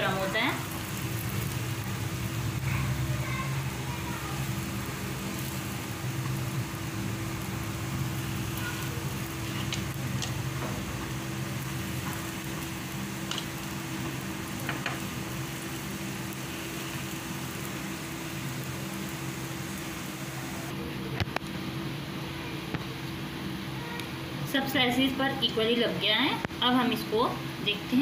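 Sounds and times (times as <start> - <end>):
bread sizzling in pan: 0.0 - 20.7.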